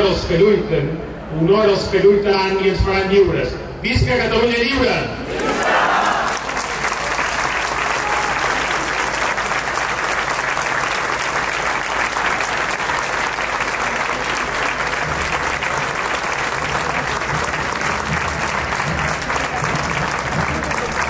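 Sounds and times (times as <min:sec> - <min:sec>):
crowd applauding: 0:05.3 - 0:21.0.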